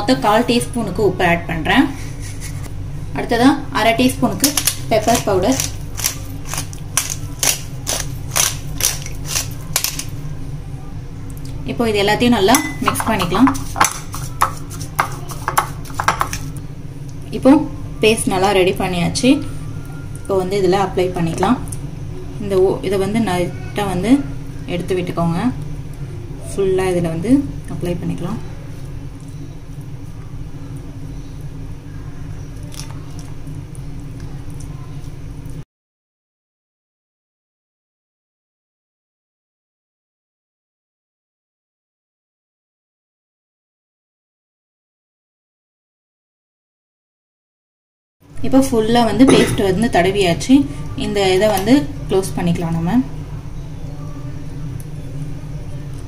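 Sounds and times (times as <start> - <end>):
steady low hum: 0.0 - 35.6, 48.2 - 56.0
person speaking: 3.2 - 8.0, 48.4 - 50.0
utensil tapping glass bowl: 12.5 - 16.4.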